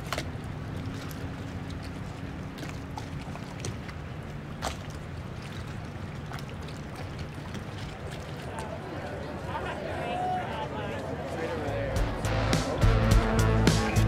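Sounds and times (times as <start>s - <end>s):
low engine hum: 0.0s - 9.4s.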